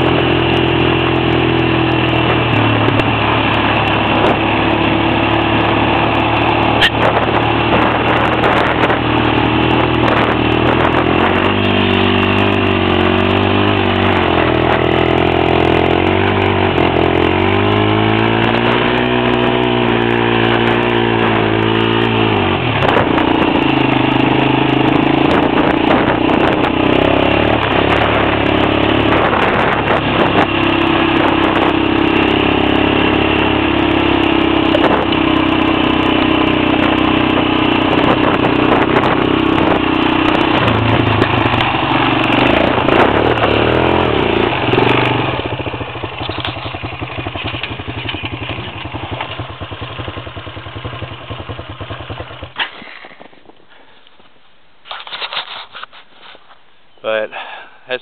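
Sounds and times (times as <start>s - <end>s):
atv engine running: 0.0s - 54.0s.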